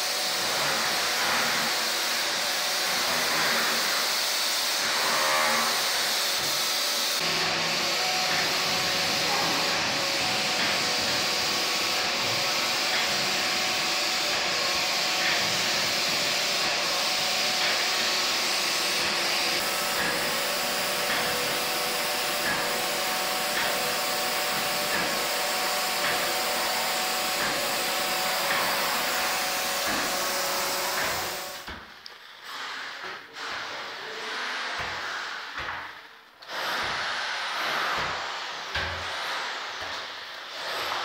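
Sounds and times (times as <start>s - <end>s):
paint sprayer hissing: 5.8s - 32.3s.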